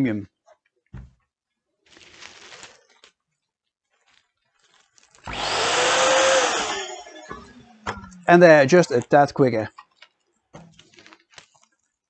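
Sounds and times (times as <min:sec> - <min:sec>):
balloon inflator blowing air: 0:05.2 - 0:07.7.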